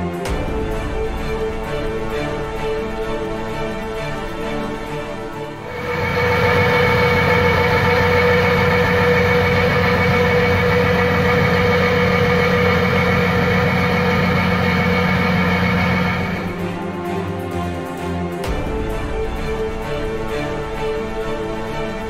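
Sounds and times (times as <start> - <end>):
constant machine whine: 0.0 - 22.0
tractor engine under load: 5.7 - 16.6.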